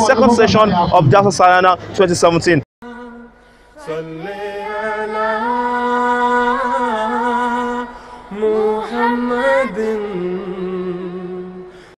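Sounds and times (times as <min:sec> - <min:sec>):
unaccompanied voice chanting: 0:02.8 - 0:11.8.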